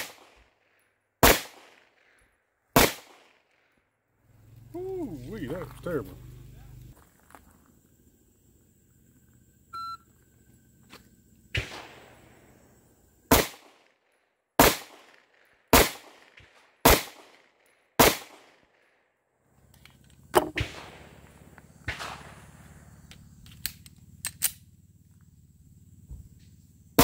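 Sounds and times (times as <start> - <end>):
pistol shots: 0.0 - 0.5, 1.2 - 2.2, 2.8 - 3.7, 11.6 - 12.4, 13.3 - 13.9, 14.6 - 18.7, 20.3 - 22.6
electronic timer beep: 9.7 - 10.1.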